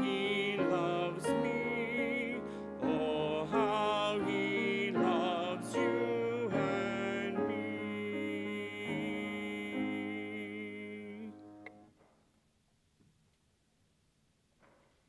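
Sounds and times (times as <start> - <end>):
man and woman singing a hymn: 0.0 - 11.6
piano accompaniment: 0.0 - 11.9.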